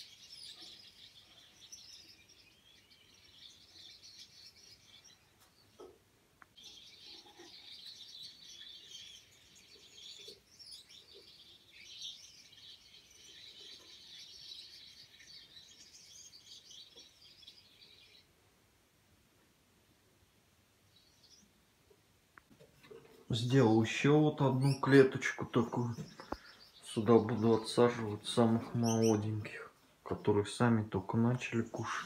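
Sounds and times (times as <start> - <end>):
finches twittering: 23.3 - 32.0.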